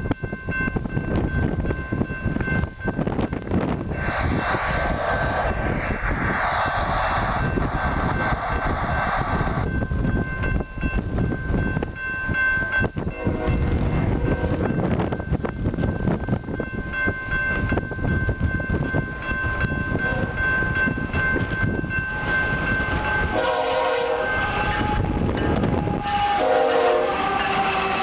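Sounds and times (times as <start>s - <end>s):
wind buffeting microphone: 0.0s - 28.0s
distant train horn: 13.2s - 14.8s, 22.1s - 28.0s.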